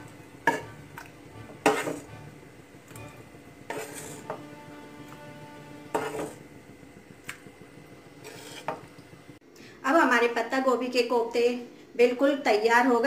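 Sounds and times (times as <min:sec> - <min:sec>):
metal spoon scraping a pan: 0:00.4 - 0:02.1, 0:03.6 - 0:06.5, 0:08.2 - 0:08.9.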